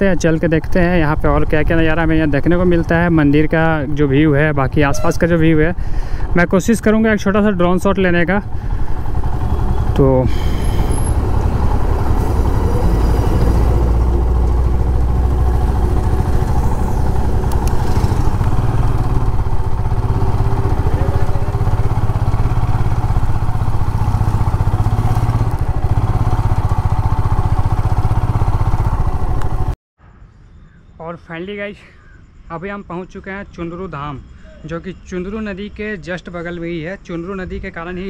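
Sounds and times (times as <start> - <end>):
motorcycle engine running: 5.8 - 29.8.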